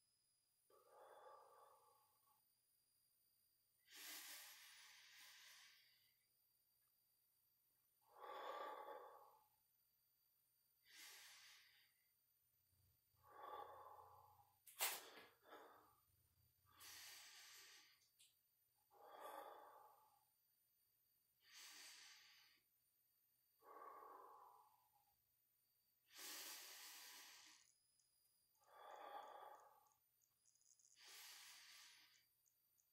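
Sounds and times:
man breathing hard: 0:16.7 - 0:18.2, 0:26.1 - 0:27.8.

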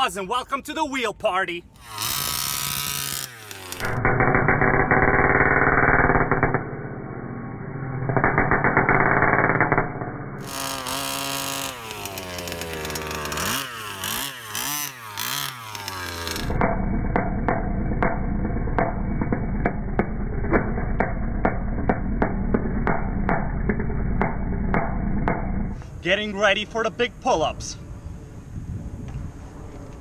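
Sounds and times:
two-stroke engine revving: 0:01.8 - 0:06.9, 0:08.2 - 0:25.7.

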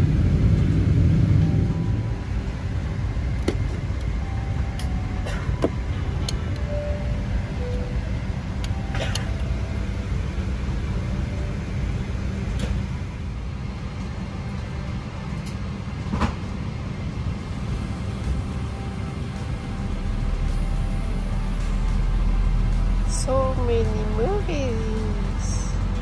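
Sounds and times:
aircraft cabin rumble: 0:00.0 - 0:26.0.

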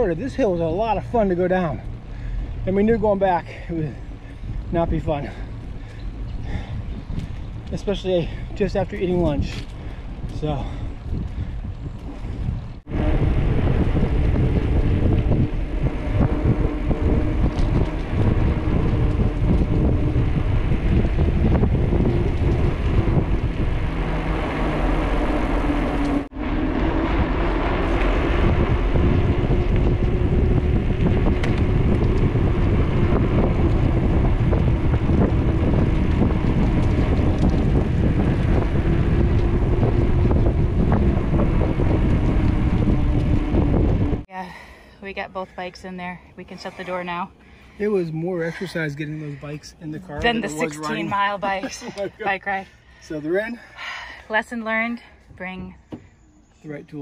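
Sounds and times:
tyres rolling on pavement: 0:00.0 - 0:44.2
wind rushing over microphone: 0:00.0 - 0:44.3.

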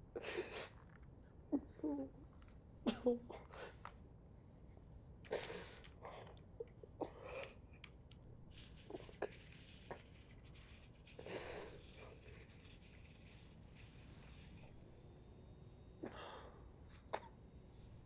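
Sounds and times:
small clicks and rustles: 0:00.7 - 0:01.4, 0:02.3 - 0:02.6, 0:05.8 - 0:14.8
faint breaths: 0:08.5 - 0:13.4, 0:16.0 - 0:18.0.

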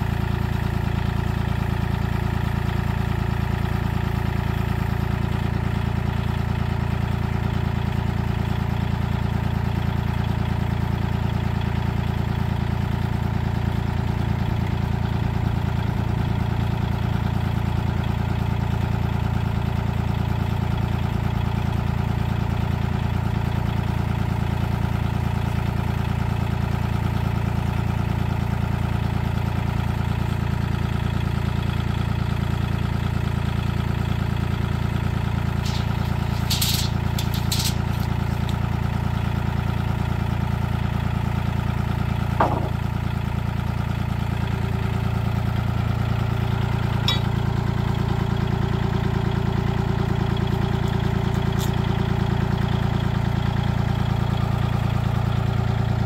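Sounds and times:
diesel tractor engine idling: 0:00.0 - 0:56.0
knock: 0:42.4 - 0:42.8.

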